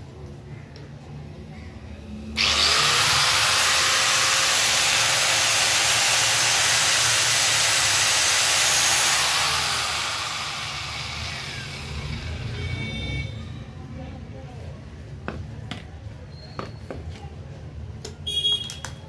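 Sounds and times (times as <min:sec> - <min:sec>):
angle grinder whining: 0:02.4 - 0:12.7.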